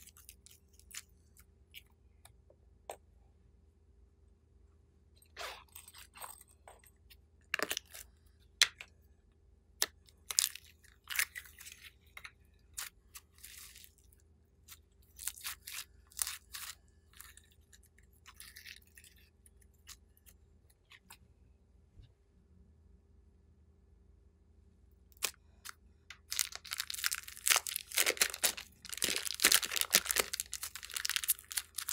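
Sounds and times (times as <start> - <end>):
slime crackling and popping: 26.1 - 31.9.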